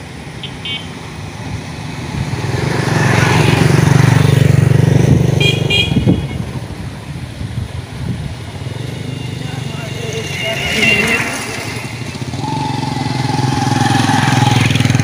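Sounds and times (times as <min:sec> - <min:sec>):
tractor diesel engine revving: 0:07.7 - 0:15.0
high-pitched horn toots: 0:08.6 - 0:13.0.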